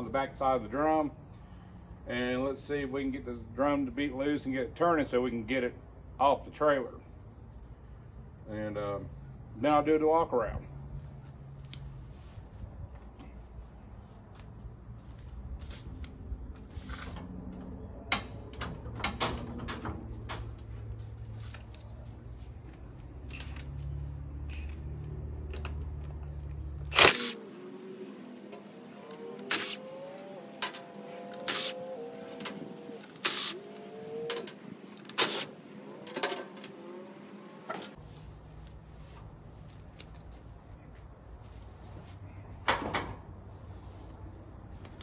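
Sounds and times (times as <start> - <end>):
impact wrench bursts: 26.9 - 27.4, 29.4 - 29.8, 30.6 - 31.8, 33.0 - 33.6, 34.3 - 35.5.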